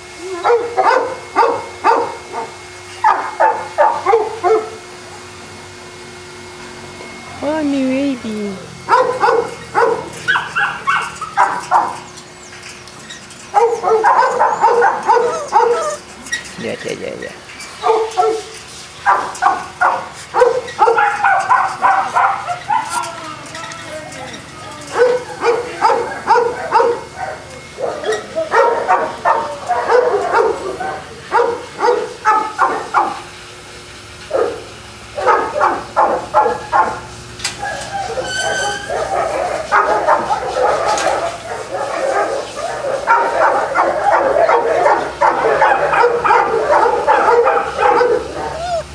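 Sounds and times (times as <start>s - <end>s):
dog barking: 0.4s - 4.8s, 8.9s - 12.0s, 13.5s - 16.0s, 17.8s - 18.5s, 19.1s - 23.1s, 24.9s - 33.3s, 34.3s - 37.0s, 37.6s - 48.9s.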